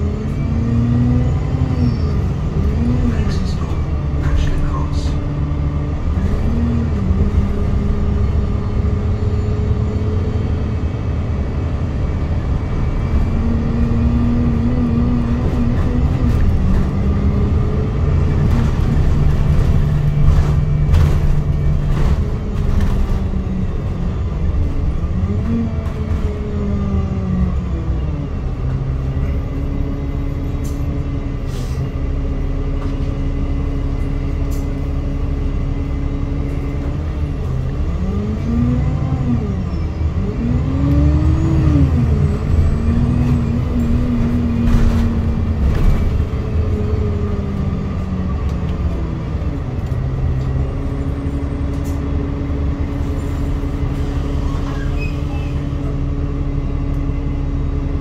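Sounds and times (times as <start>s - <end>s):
bus diesel engine running: 0.0s - 58.0s
bus body knocks and rattles: 18.1s - 23.9s, 25.7s - 26.6s, 43.1s - 47.1s.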